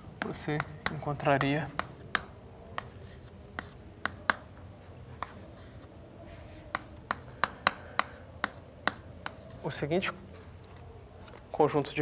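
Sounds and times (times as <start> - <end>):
chalk scraping on blackboard: 0.2 - 2.2, 2.8 - 4.5, 5.2 - 9.8
chalk tapping on blackboard: 0.2 - 4.5, 5.2 - 9.8.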